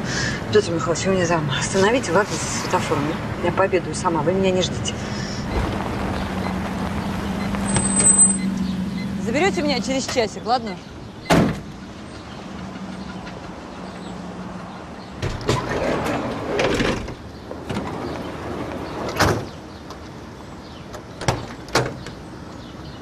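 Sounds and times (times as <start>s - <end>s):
sliding door slamming shut: 11.3s - 11.7s, 15.2s - 19.6s
sliding door running along track: 15.2s - 20.0s.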